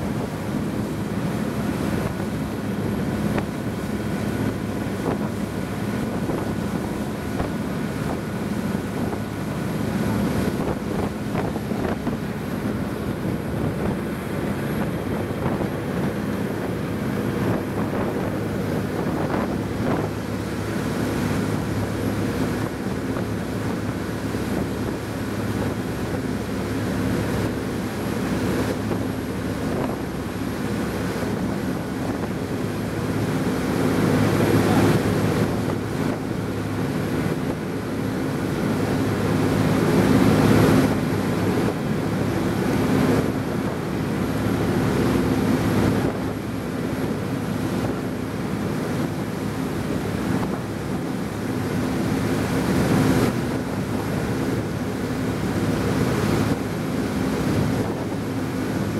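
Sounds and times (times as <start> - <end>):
motorboat engine droning: 0.0 - 58.9
rush of boat wake: 0.0 - 58.9
wind buffeting microphone: 0.0 - 58.9.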